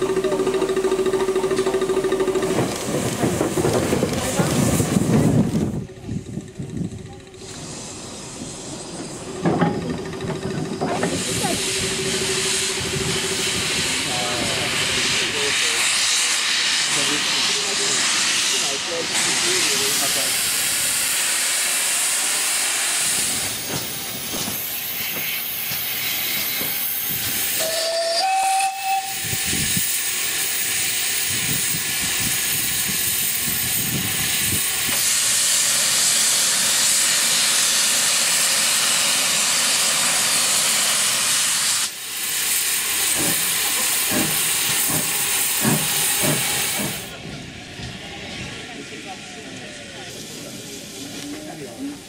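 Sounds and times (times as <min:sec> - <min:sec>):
locomotive steam hissing: 0:00.0 - 0:52.0
steam whistle blast: 0:27.5 - 0:29.6
locomotive exhaust beats: 0:43.0 - 0:47.2.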